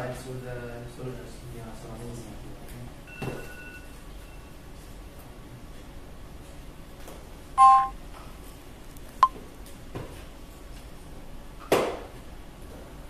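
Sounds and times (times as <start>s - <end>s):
two-tone electronic beep: 7.6s - 7.9s.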